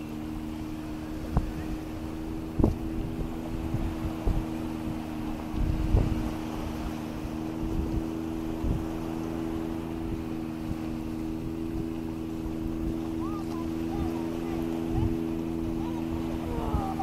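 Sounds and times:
boat engine droning: 0.0 - 17.0
short low thumps: 1.2 - 6.2.

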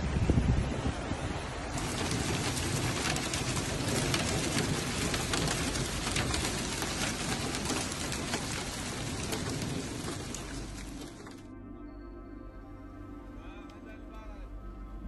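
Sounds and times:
rain rushing: 0.0 - 11.5
hailstones ticking: 1.7 - 11.5.

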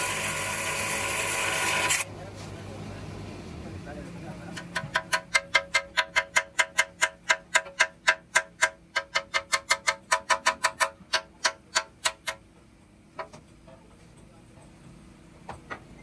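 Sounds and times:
hammer striking cast iron: 4.5 - 12.4.

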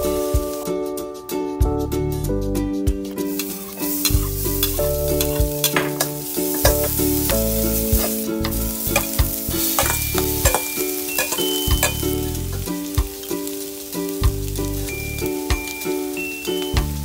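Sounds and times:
food sizzling in oil: 0.0 - 0.6, 3.1 - 17.0
utensil scraping a wok: 3.2 - 16.8.

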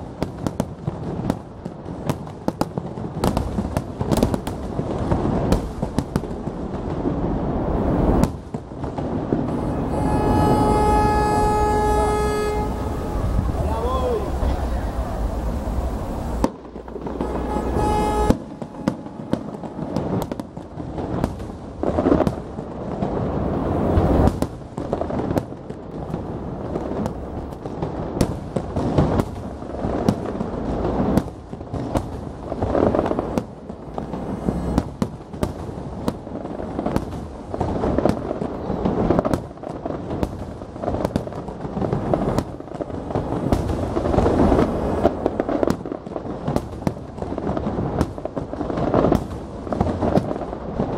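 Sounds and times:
continuous rumble: 1.3 - 39.3
firework shells bursting: 7.8 - 14.7, 15.4 - 38.3
steady pitched tone: 9.4 - 20.2.

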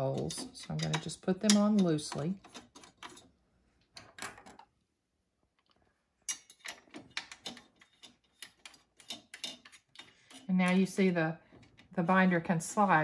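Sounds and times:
small metal clicks and taps: 0.2 - 3.2.

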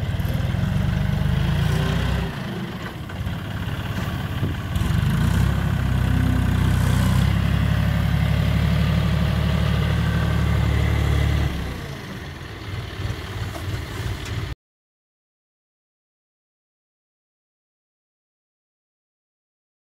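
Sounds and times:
tractor diesel engine running: 0.0 - 14.6.

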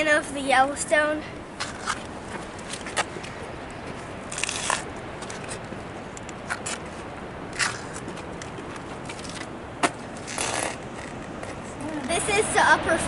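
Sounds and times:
footsteps on gritty rock: 1.6 - 5.6, 7.6 - 11.8.

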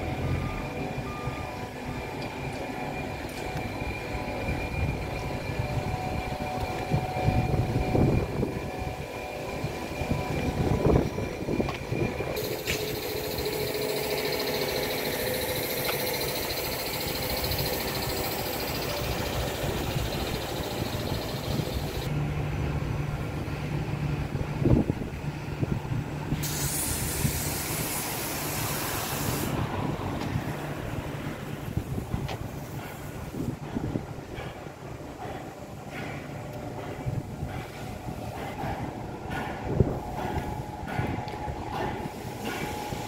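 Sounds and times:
low engine-like hum: 0.0 - 43.0
street noise of vehicles: 0.0 - 43.0.

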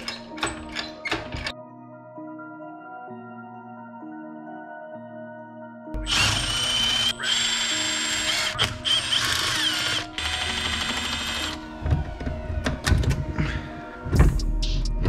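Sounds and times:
cordless power tool whirring: 6.0 - 11.6.

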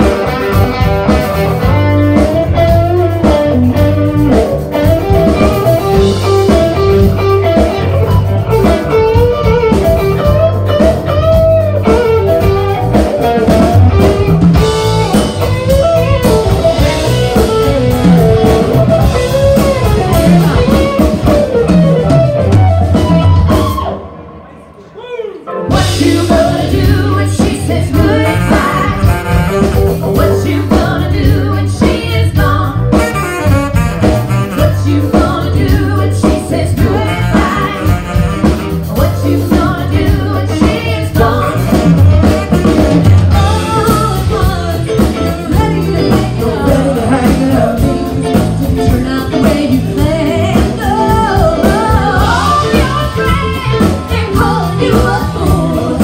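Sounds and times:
drum kit: 0.0 - 24.4, 25.5 - 56.0
bass: 0.0 - 24.9, 25.6 - 56.0
electric guitars: 0.0 - 24.9, 25.5 - 56.0
electric keyboard: 0.0 - 56.0
women singing: 25.7 - 29.3, 30.1 - 32.9, 34.6 - 38.2, 38.9 - 42.4, 43.3 - 56.0.

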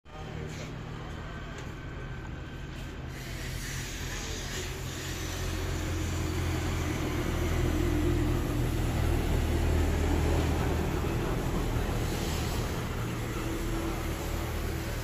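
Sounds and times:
road traffic: 0.1 - 15.0
truck driving past: 4.1 - 15.0.

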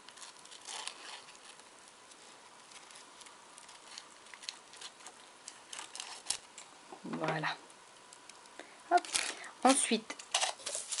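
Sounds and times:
scissors snipping paper: 0.0 - 1.6
paper rustling: 0.0 - 6.7, 10.2 - 11.0.

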